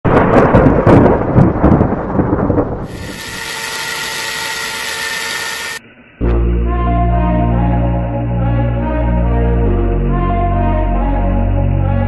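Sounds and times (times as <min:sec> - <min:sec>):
thunder-like rumble: 0:00.0 - 0:03.5
angle grinder cutting iron: 0:02.9 - 0:05.8
music: 0:06.2 - 0:12.0.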